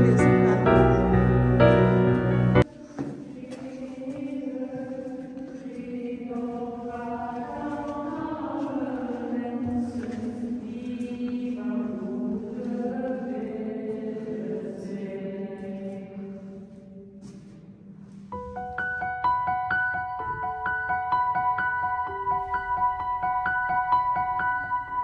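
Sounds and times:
choir singing a chant: 0.0 - 16.7.

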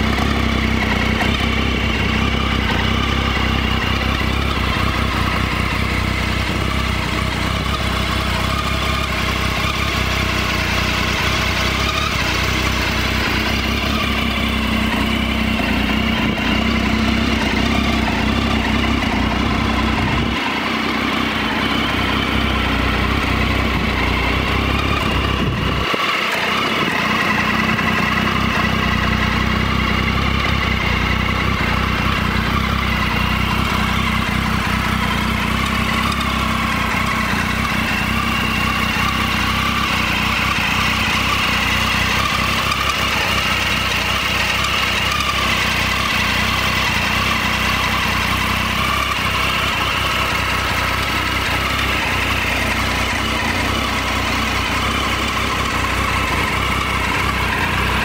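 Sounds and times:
motorcycle engine idling: 0.0 - 58.0.

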